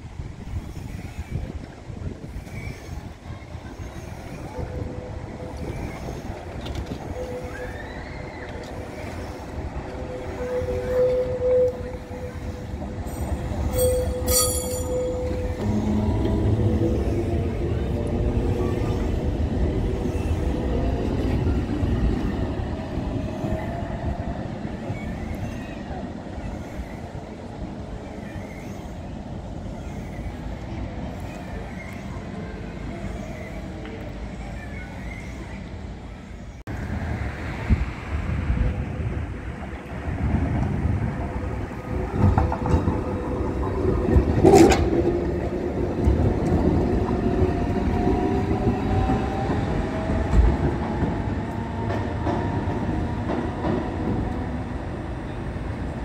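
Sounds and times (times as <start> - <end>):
tram rumbling with whining tones: 0.0 - 56.0
tram wheels squealing on rails: 0.0 - 56.0
high metallic ringing: 13.1 - 16.0.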